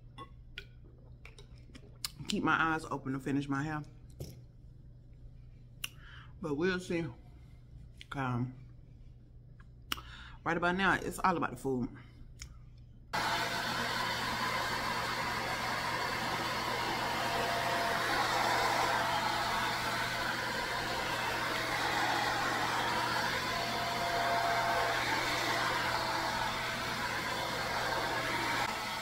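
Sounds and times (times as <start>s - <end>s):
blower blowing air: 13.2s - 29.0s.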